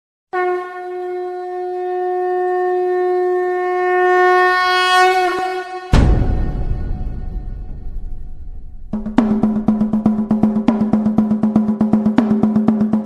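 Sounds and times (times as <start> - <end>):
horn long note: 0.3 - 10.5
drum crash and roll: 5.9 - 13.0.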